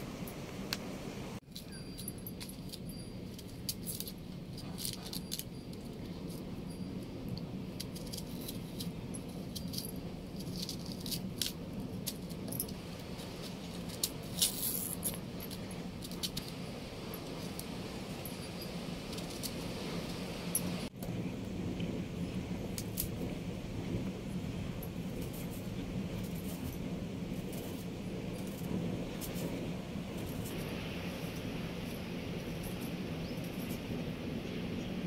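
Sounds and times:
bangles clinking: 1.5 - 20.9.

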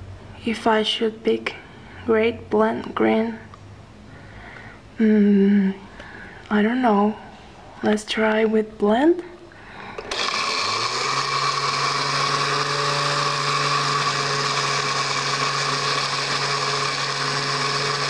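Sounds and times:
blender motor running: 10.0 - 18.0.

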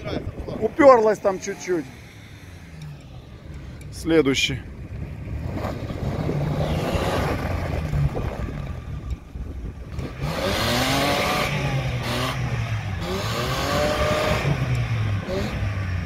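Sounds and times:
engine revving: 0.7 - 16.0
tyres spinning in snow: 5.2 - 12.2.

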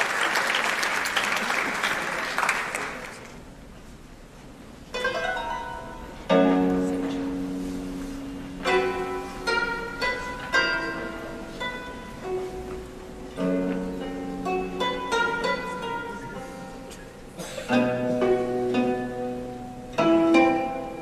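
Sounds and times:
audience applause: 0.0 - 3.4
plucked string instrument: 4.8 - 21.0.

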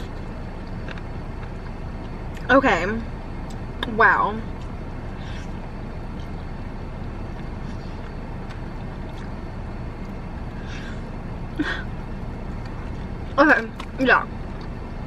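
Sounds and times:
car engine idling: 0.0 - 15.0
chewing and mouth noises: 4.5 - 10.7, 13.7 - 14.8.

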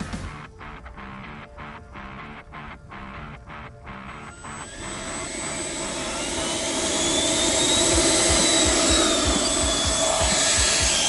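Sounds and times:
electric fans roaring and whining: 3.0 - 11.0.

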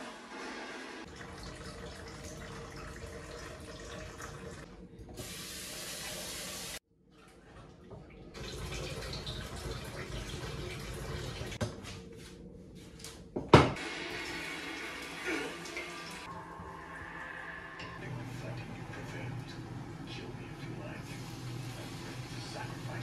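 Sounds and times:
water pouring into a sink: 0.4 - 11.6, 13.8 - 17.2.

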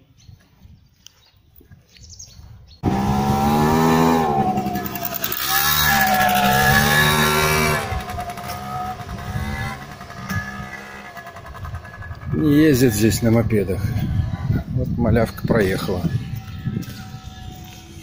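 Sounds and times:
moped engine riding off: 2.8 - 14.7.

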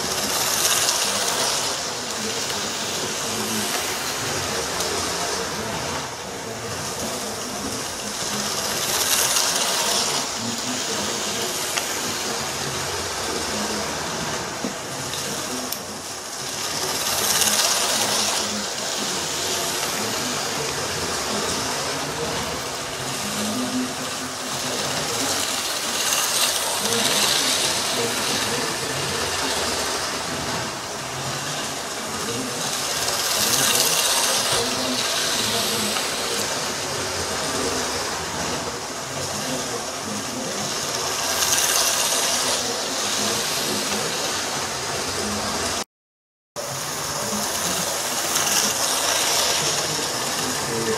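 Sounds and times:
wheels rattling on rails: 0.0 - 45.8, 46.6 - 50.9.

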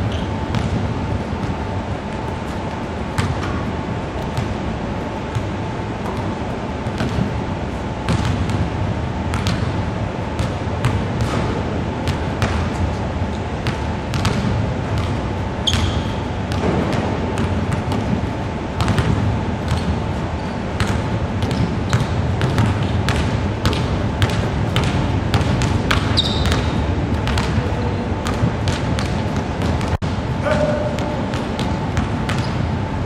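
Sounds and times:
sneaker squeak: 0.0 - 0.8, 15.6 - 16.6, 19.7 - 23.0, 25.9 - 27.4, 32.2 - 32.8
basketballs bouncing on hardwood: 0.1 - 0.8, 3.2 - 3.6, 5.3 - 7.3, 10.4 - 12.8, 13.6 - 20.2, 20.8 - 32.6.

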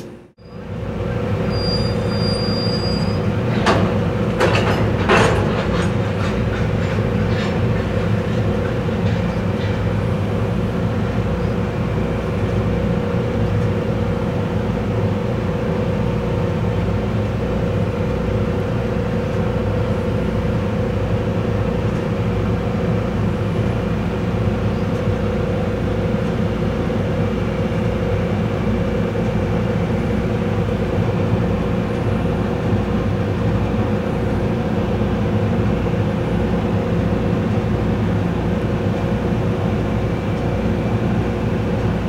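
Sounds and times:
railway equipment rumble and hum: 0.0 - 42.0
high squeal: 1.5 - 3.3.

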